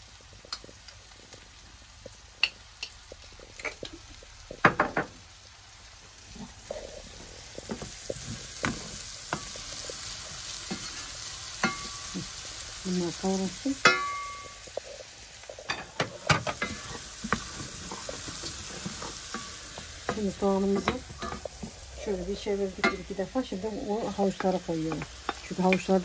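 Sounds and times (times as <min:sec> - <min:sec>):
meat and vegetables sizzling: 0:00.0 - 0:26.0.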